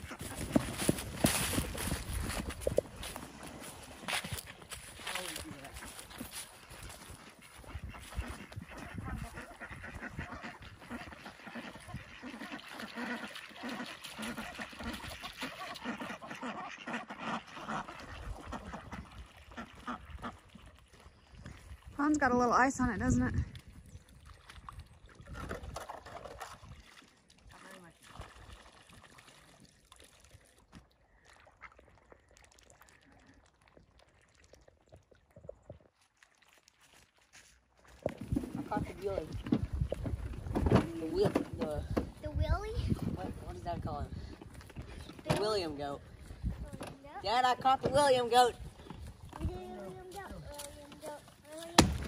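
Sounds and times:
ducks quacking: 0:00.0 - 0:02.4, 0:05.1 - 0:20.7
water poured into pond: 0:00.0 - 0:40.6, 0:48.1 - 0:52.0
ducks dabbling in water: 0:00.0 - 0:52.0.

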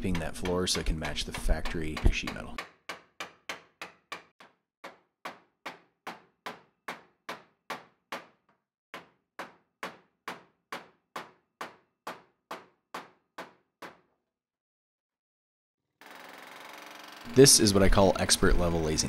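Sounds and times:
hammer striking chisel on metal: 0:00.0 - 0:08.4.

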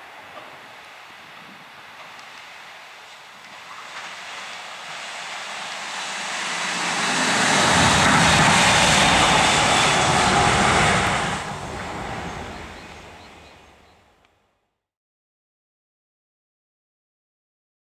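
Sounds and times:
train wheels rushing on rail: 0:00.0 - 0:13.9.

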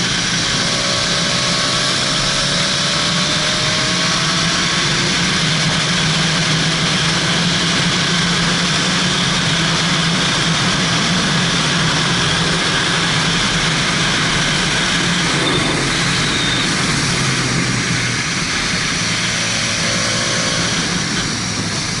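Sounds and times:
motorcycle engine running: 0:00.0 - 0:22.0
wind rush on microphone: 0:03.0 - 0:19.8, 0:20.5 - 0:22.0.

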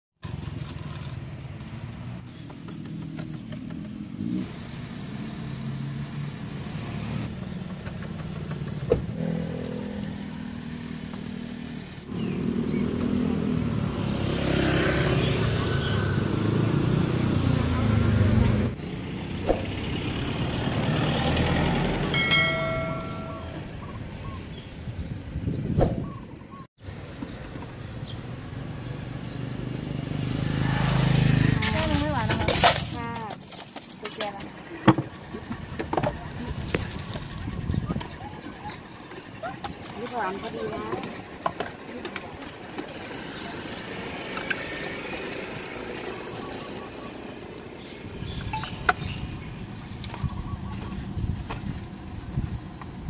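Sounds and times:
motorcycle engines running: 0:00.2 - 0:25.6, 0:27.0 - 0:53.0
electronic chime: 0:22.2 - 0:23.7
voices murmuring: 0:34.0 - 0:44.7.

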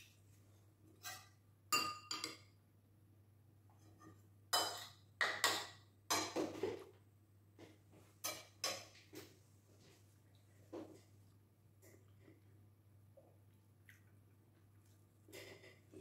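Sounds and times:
cutlery scraping plate: 0:01.0 - 0:01.4, 0:03.8 - 0:06.8
cutlery clinking on ceramic plate: 0:01.0 - 0:02.5, 0:04.5 - 0:06.7, 0:08.2 - 0:09.0.

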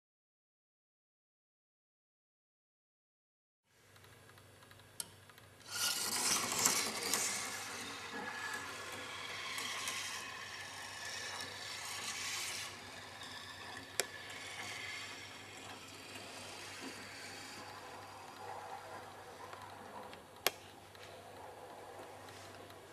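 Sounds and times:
marble rolling on plastic rails: 0:05.6 - 0:20.4.

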